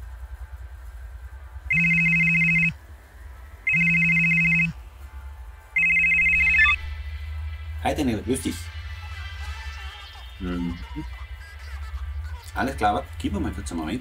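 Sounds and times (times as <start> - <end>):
mobile phone ringing: 1.7 - 2.8, 3.7 - 4.8, 5.8 - 6.9.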